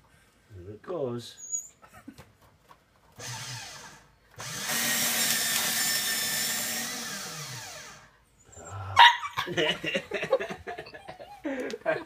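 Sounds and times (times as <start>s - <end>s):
paper shredder whirring: 3.2s - 8.1s.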